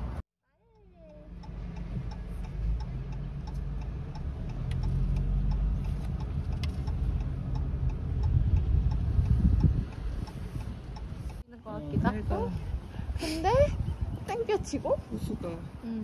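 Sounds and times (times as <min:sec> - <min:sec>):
engine and road rumble: 0:00.0 - 0:16.0
faint regular ticking: 0:00.7 - 0:11.4.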